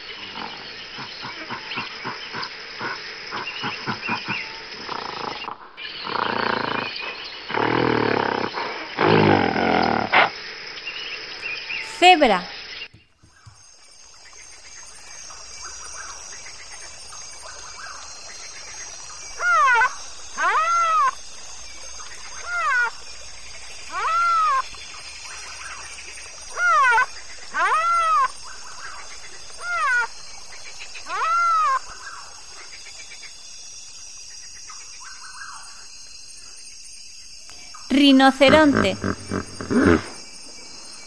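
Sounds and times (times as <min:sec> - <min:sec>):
steady high background hiss: 0:13.7 - 0:41.0
zebra barking: 0:38.4 - 0:40.2.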